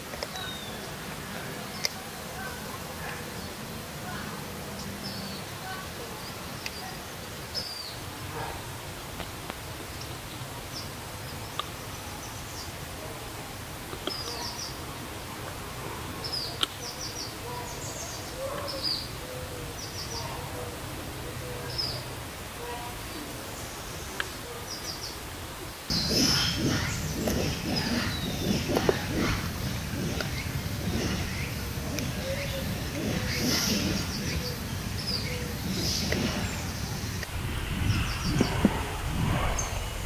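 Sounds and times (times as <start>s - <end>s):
steady low background noise: 0.0s - 40.0s
faint clicks: 11.5s - 11.8s, 30.0s - 34.4s
high bird chirps: 25.9s - 37.3s.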